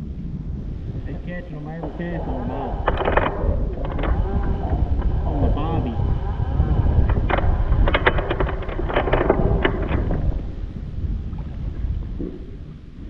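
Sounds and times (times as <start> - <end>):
wind buffeting microphone: 0.0 - 13.0
sharp clicks and knocks: 1.2 - 10.6.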